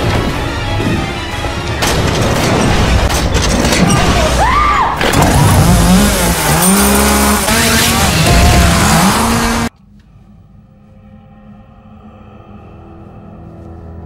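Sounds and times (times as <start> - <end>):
chainsaw engine revving: 5.2 - 9.7
chainsaw cutting through wood: 5.3 - 9.7.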